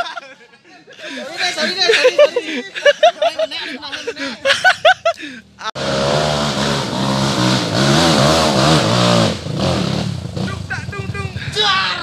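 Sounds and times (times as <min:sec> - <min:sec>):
dirt bike engine revving: 0:05.8 - 0:11.6.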